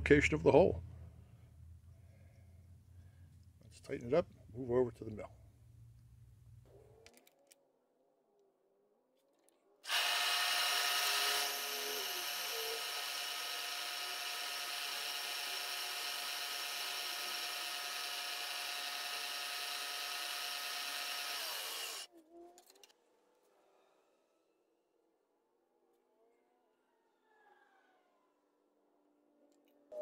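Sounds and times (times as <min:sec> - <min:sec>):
milling machine spindle whine: 0:09.9 - 0:22.0.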